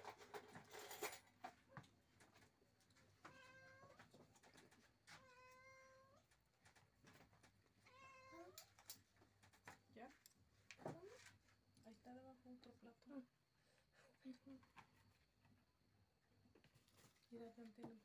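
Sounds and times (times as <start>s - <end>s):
cat meowing: 3.2s - 4.0s, 5.1s - 6.2s, 7.9s - 8.7s.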